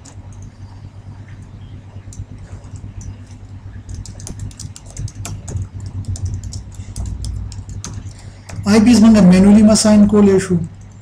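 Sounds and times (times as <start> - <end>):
steady low hum: 0.0 - 11.0
keyboard typing: 2.1 - 9.4.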